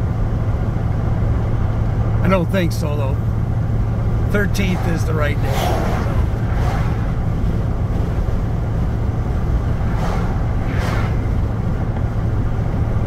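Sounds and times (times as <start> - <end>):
truck driving drone: 0.0 - 13.0
tyre and wind noise: 5.3 - 13.0.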